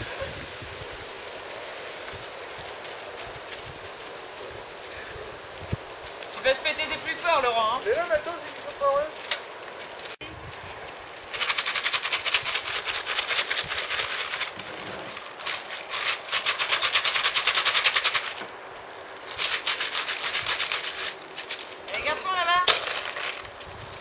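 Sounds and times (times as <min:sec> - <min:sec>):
rapid sharp cracks: 0:11.2 - 0:18.6, 0:19.2 - 0:23.7.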